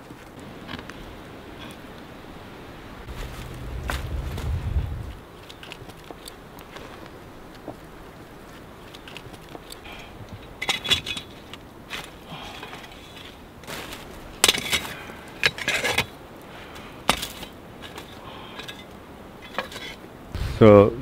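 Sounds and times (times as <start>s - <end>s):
scraping handling noise: 17.1s - 20.0s.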